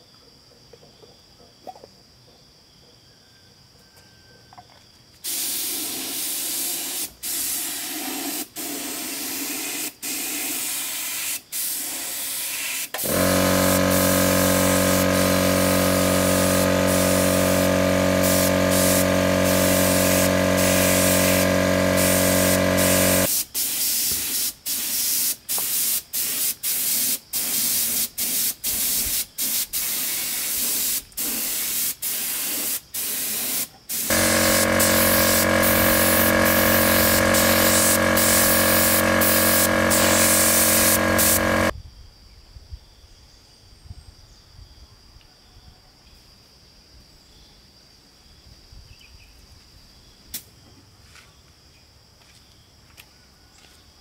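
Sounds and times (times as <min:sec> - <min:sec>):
spray gun hissing: 0:05.3 - 0:41.7
air compressor motor humming: 0:13.0 - 0:23.3, 0:34.0 - 0:41.7.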